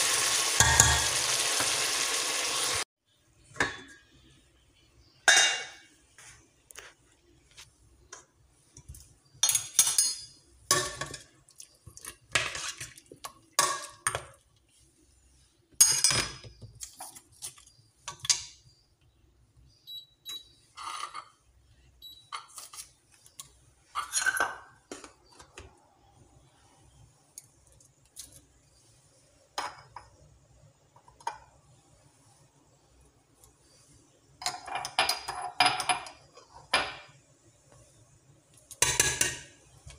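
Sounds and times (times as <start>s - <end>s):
metal kitchenware clinking on pot: 9.4s - 11.3s.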